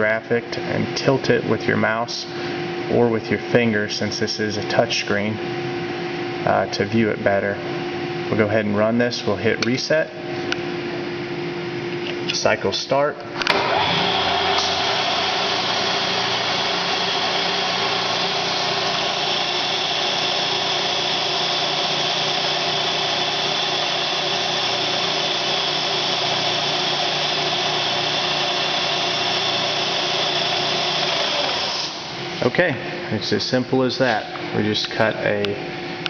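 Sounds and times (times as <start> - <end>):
milling machine whining: 13.4 - 32.5
mist coolant hissing: 13.6 - 32.3.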